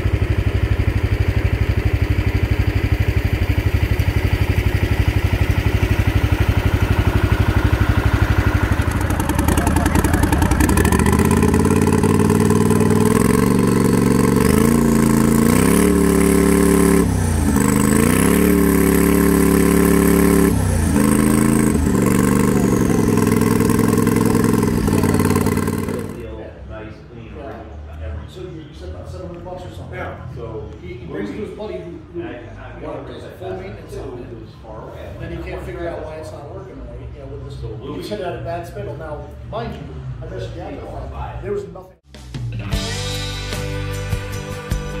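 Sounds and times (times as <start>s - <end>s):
tractor engine revving: 0.0s - 26.3s.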